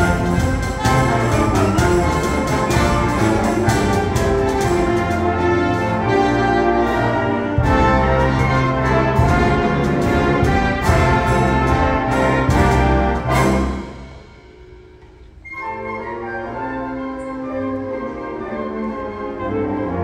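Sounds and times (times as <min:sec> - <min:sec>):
concert band playing held chords: 0:00.0 - 0:15.4
percussion strikes: 0:00.0 - 0:15.7.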